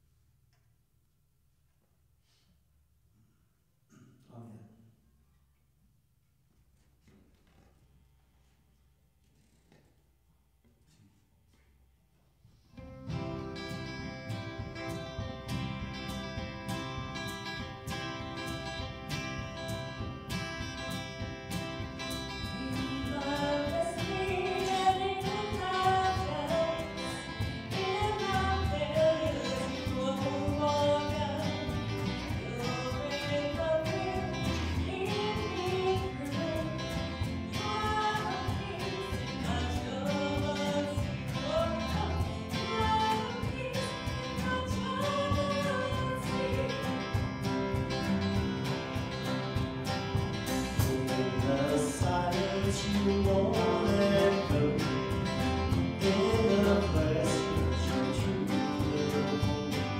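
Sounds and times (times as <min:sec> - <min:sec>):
strummed acoustic guitars: 0:12.6 - 0:59.9.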